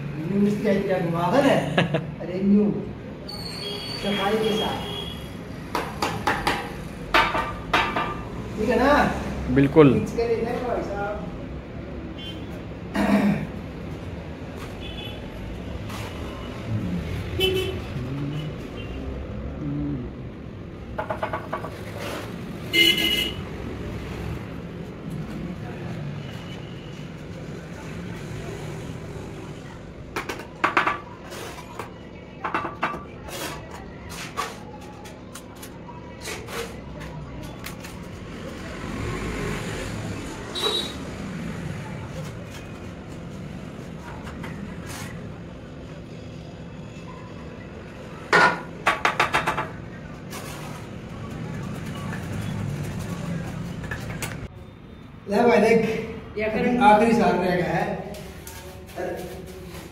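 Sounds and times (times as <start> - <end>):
sharp taps and knocks: 5.7 - 8.3, 20.9 - 21.8, 30.1 - 31.2, 48.3 - 49.8.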